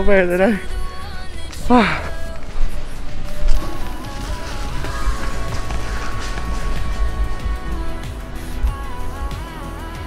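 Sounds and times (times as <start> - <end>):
low bass pulse: 3.6 - 9.3.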